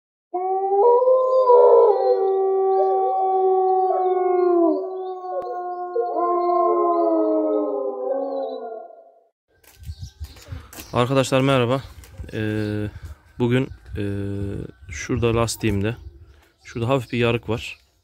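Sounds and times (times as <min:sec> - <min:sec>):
wolves howling: 0:00.4 - 0:09.2.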